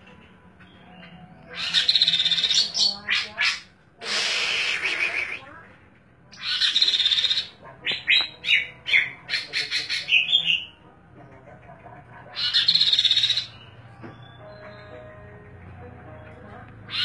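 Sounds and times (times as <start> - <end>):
songbird singing: 0.6 - 3.6, 6.3 - 10.8, 12.3 - 17.0.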